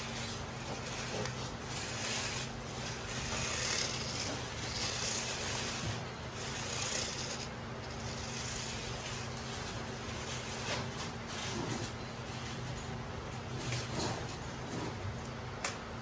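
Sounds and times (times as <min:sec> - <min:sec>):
toy car wheels rolling on floor: 0:00.0 - 0:09.5.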